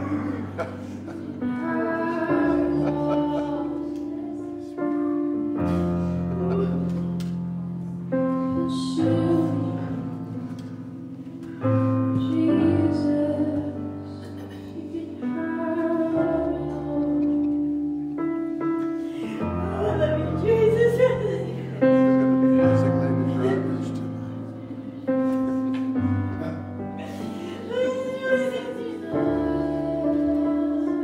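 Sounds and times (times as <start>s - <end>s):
person singing: 0.0s - 7.2s, 8.1s - 10.4s, 11.8s - 14.1s, 14.8s - 17.8s, 26.4s - 31.0s.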